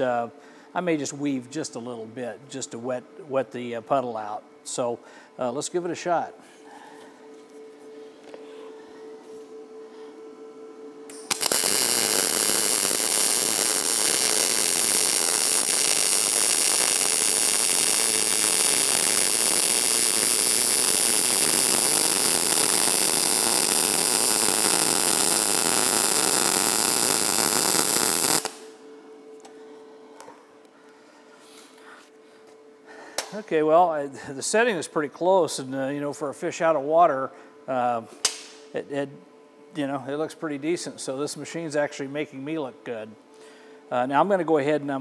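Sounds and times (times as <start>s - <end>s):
faint steady hum: 0.0s - 45.0s
welding arc noise: 11.1s - 28.8s.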